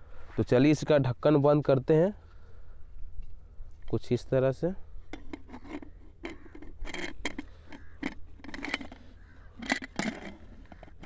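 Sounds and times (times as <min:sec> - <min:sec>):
metal lid scraping and clicking: 0:05.1 - 0:11.0.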